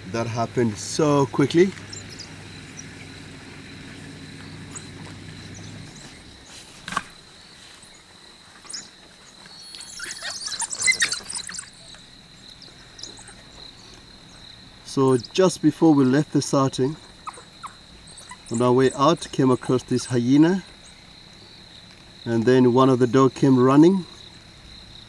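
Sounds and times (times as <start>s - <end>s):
wild dogs twittering and squealing: 0.0s - 22.1s
high insect tone: 0.0s - 25.0s
high-pitched chirps: 9.5s - 12.1s.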